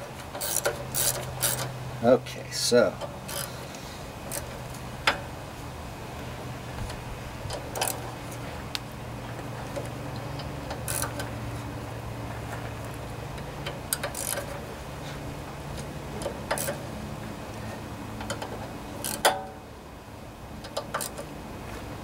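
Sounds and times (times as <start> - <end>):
sharp metal clicks: 0.3 - 1.8, 3.0 - 3.6, 4.3 - 5.3, 9.7 - 11.4, 13.3 - 14.6, 16.2 - 16.9, 18.2 - 19.6, 20.6 - 21.3
socket wrench ratchet clicking: 0.4 - 1.7, 3.2 - 3.5, 10.4 - 11.3, 13.6 - 14.5, 16.2 - 16.8, 18.2 - 19.4, 20.6 - 21.3.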